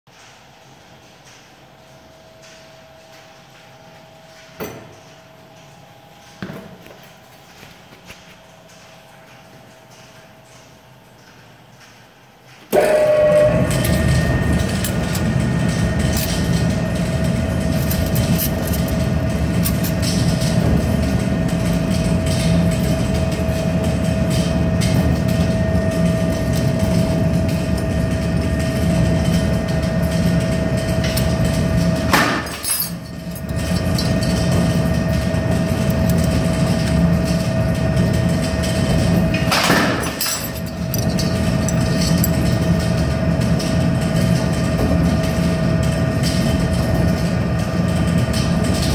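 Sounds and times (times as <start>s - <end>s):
machine clacking: 8.4s - 48.9s
press brake motor whining: 12.7s - 20.2s.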